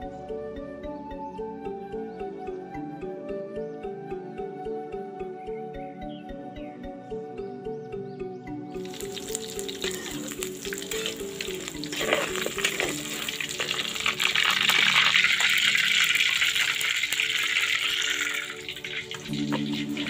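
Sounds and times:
tofu sizzling in hot oil: 0:08.8 - 0:20.0
metal spatula clicking and scraping: 0:11.0 - 0:15.6.

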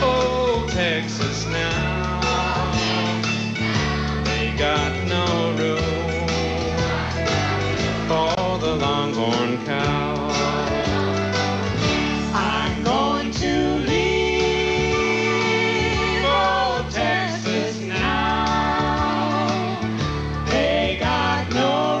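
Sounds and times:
guitar: 0:00.0 - 0:22.0
man and woman singing: 0:04.2 - 0:07.3, 0:12.0 - 0:22.0.

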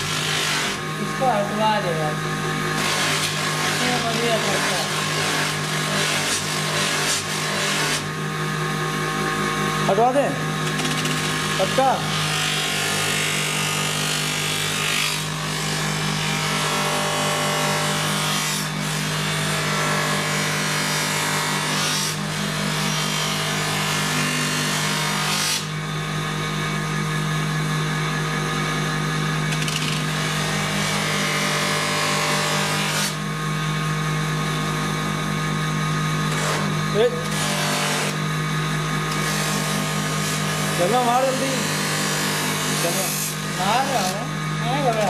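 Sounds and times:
polishing motor humming: 0:00.0 - 0:45.0
wooden bat rubbing on buffing wheel: 0:02.7 - 0:08.1.

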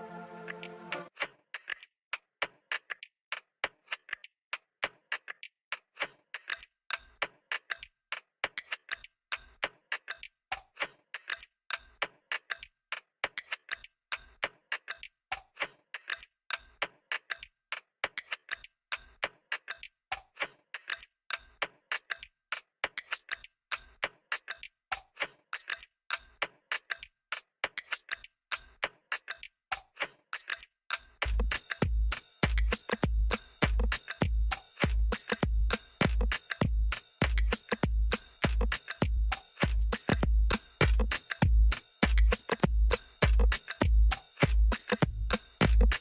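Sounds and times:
ambient electronic music: 0:00.0 - 0:01.1
clicking ticking percussion: 0:01.2 - 0:46.0.

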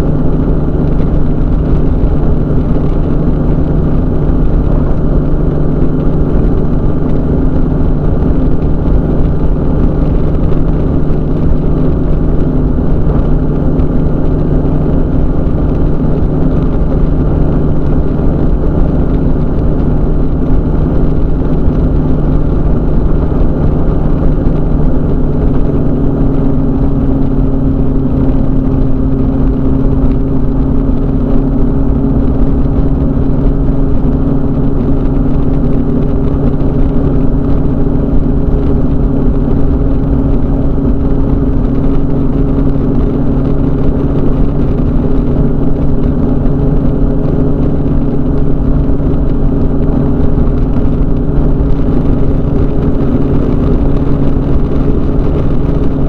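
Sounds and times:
ultralight engine and propeller drone: 0:00.0 - 0:56.0.

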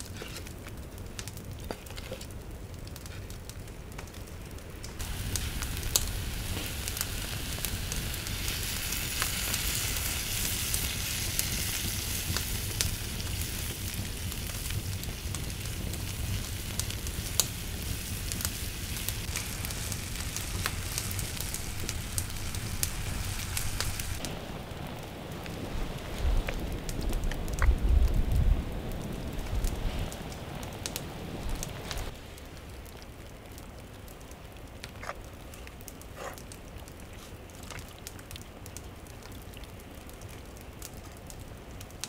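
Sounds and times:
campfire wood crackling: 0:00.0 - 0:42.0
tomatoes sizzling in pot: 0:04.9 - 0:24.5.

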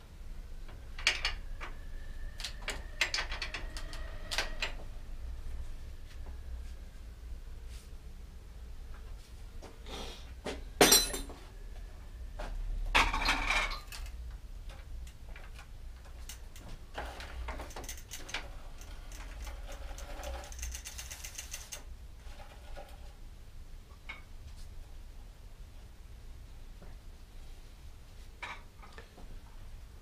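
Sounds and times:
metal tools clanking: 0:10.8 - 0:11.4.

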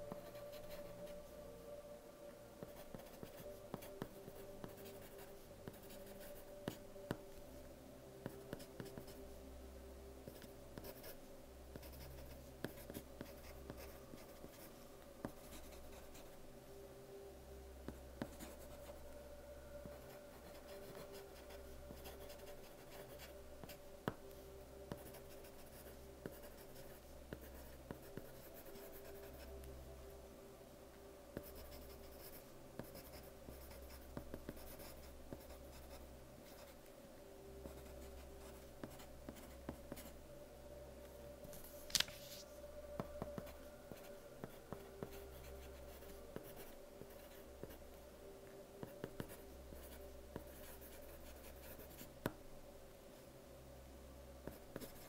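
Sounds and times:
pencil scratching on paper: 0:02.7 - 0:06.4, 0:10.3 - 0:11.2, 0:11.8 - 0:14.7, 0:31.4 - 0:35.9, 0:48.8 - 0:52.1.

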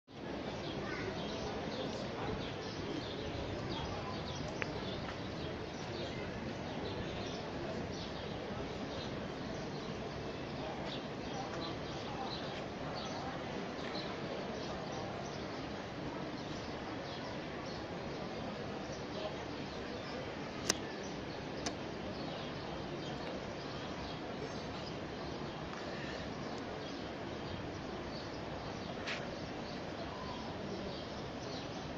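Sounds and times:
faint distant voices: 0:00.1 - 0:31.9
outdoor background noise: 0:00.1 - 0:31.9
sharp click: 0:20.6 - 0:20.9, 0:21.6 - 0:21.8.

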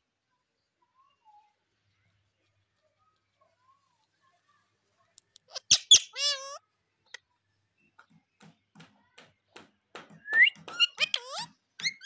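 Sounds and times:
parrot rising chirps: 0:05.5 - 0:06.6
beak tapping wooden stick: 0:09.6 - 0:12.0.

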